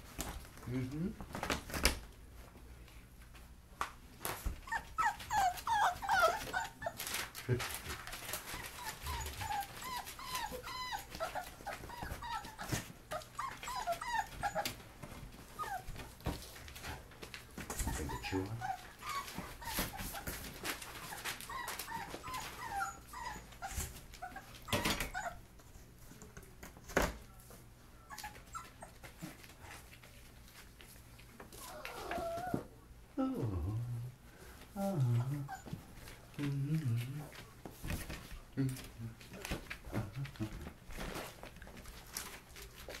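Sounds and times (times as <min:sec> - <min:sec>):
puppies whimpering and yipping: 0:04.6 - 0:07.2, 0:08.2 - 0:14.8, 0:17.8 - 0:25.4, 0:31.6 - 0:32.7.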